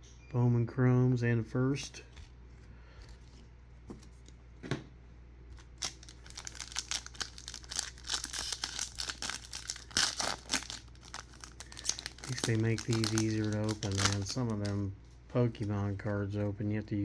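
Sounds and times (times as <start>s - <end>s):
wrapper crinkling and tearing: 5.6s - 14.9s.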